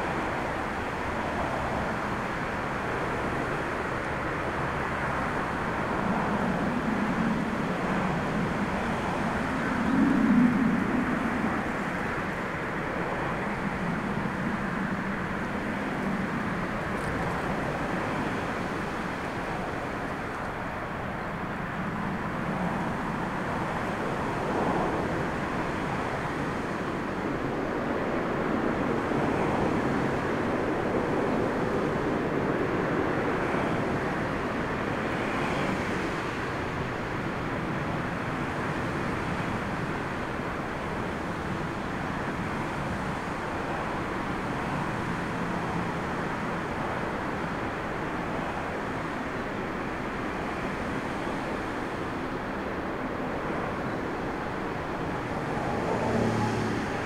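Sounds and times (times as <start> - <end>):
turboprop airliner engines taxiing: 0.0 - 57.0
storm wind rushing: 5.1 - 18.8.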